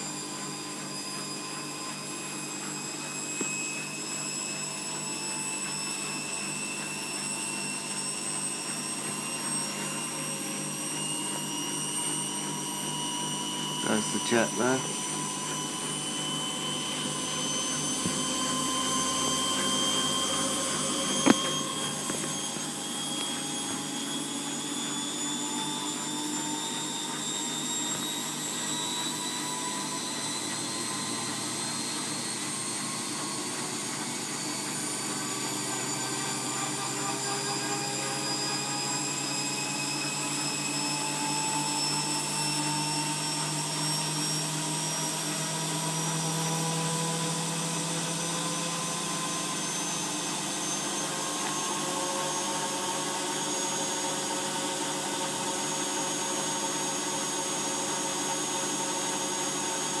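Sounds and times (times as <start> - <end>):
washing machine motor whine: 0.0 - 60.0.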